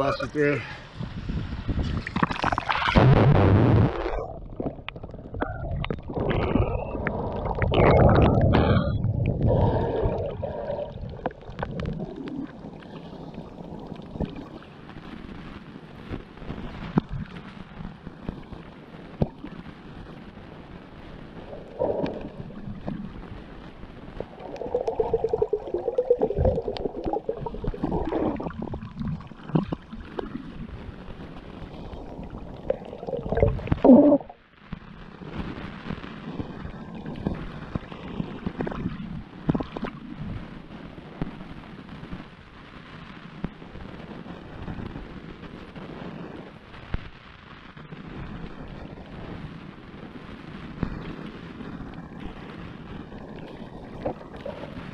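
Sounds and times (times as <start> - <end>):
water gurgling underwater: 1.6 - 14.7, 21.3 - 34.5, 36.4 - 40.5, 53.0 - 54.9.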